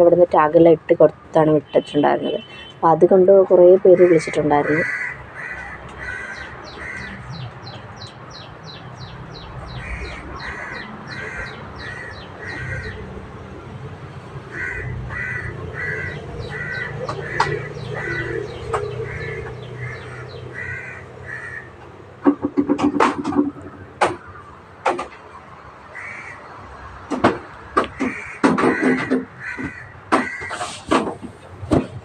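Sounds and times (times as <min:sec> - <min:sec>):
low hum of busy store: 0:00.0 - 0:32.0
small birds chirping: 0:03.6 - 0:13.7, 0:14.6 - 0:22.0
crows cawing: 0:03.9 - 0:07.3, 0:09.7 - 0:13.1, 0:14.5 - 0:21.8, 0:23.3 - 0:24.6, 0:25.8 - 0:26.9, 0:27.6 - 0:30.7.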